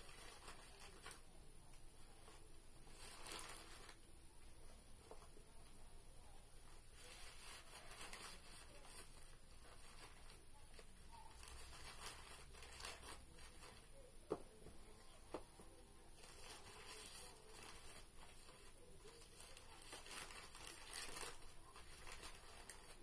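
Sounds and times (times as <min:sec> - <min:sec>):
paper rustling and tearing: 0:00.0 - 0:01.3, 0:02.2 - 0:04.0, 0:06.9 - 0:14.0, 0:16.1 - 0:23.0.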